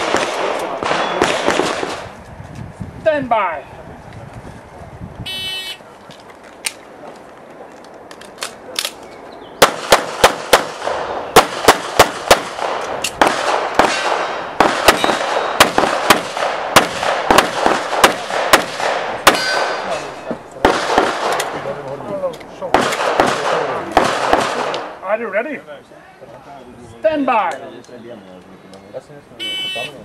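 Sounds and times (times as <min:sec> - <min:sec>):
pistol shots: 0:00.0 - 0:02.1, 0:09.6 - 0:19.9, 0:20.6 - 0:21.6, 0:22.7 - 0:25.0
faint gunshot cracks: 0:22.8 - 0:24.9.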